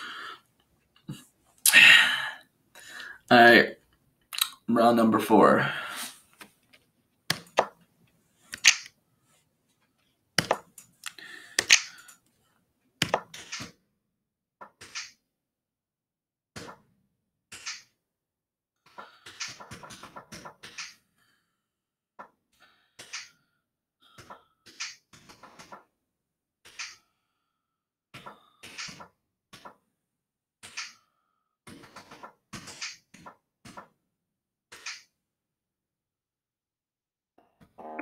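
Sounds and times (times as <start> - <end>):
sharp snaps: 8.5 - 9.0, 10.4 - 12.1, 30.6 - 31.0, 34.7 - 35.1.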